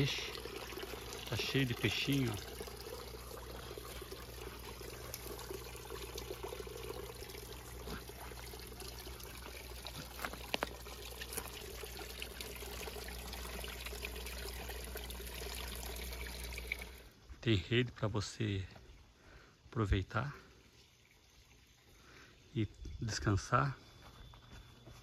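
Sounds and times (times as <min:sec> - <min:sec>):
water running: 0:00.0 - 0:17.3.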